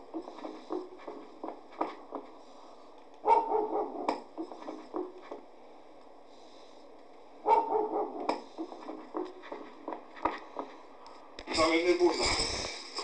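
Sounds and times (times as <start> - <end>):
dog barking: 3.2 - 4.3, 7.4 - 8.5.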